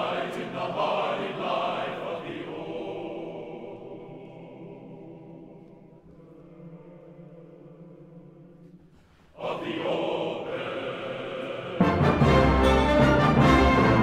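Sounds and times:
choir singing chant-like: 0:00.0 - 0:14.0
orchestra playing: 0:11.8 - 0:14.0.

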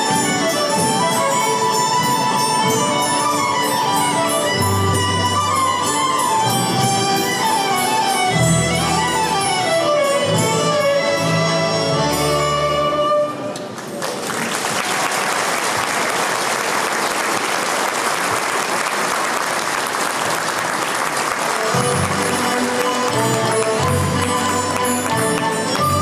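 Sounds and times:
folk ensemble music: 0:00.0 - 0:14.0, 0:18.8 - 0:26.0
audience clapping: 0:13.6 - 0:26.0.

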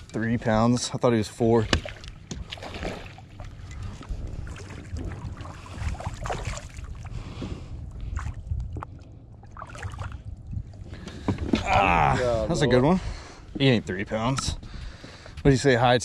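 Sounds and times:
water lapping against hull: 0:00.0 - 0:15.4
fish thrashing and splashing: 0:01.6 - 0:07.2, 0:08.0 - 0:10.3
wind rumble on microphone: 0:01.7 - 0:15.6.

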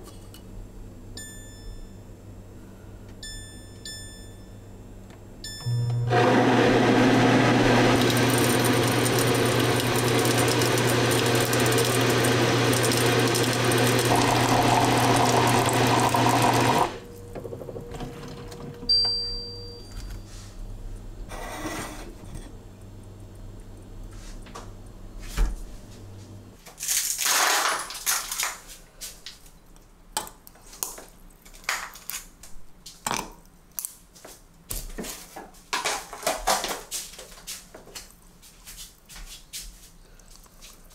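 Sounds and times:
short beep: 0:05.5 - 0:06.1
water purifier humming: 0:05.5 - 0:19.9
water stream pouring into teapot: 0:07.6 - 0:17.0.

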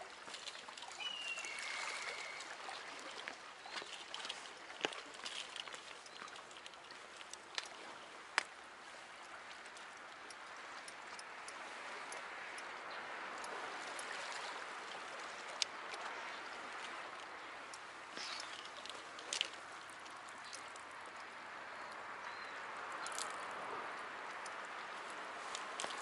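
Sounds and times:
seawater washing against rocks: 0:22.8 - 0:26.0.

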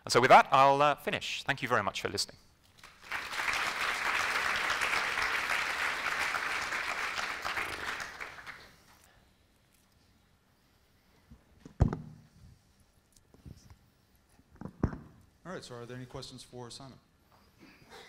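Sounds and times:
audience applauding: 0:02.8 - 0:08.8.

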